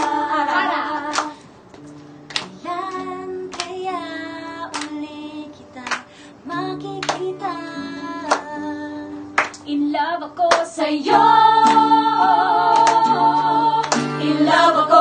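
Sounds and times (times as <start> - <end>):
women singing together: 0.0 - 1.4, 2.6 - 15.0
hand claps: 0.0 - 3.9, 4.6 - 5.1, 5.8 - 6.2, 6.8 - 7.5, 8.2 - 8.6, 9.3 - 9.7, 10.5 - 10.8, 11.6 - 12.0, 12.7 - 14.6
strummed acoustic guitar: 11.1 - 15.0.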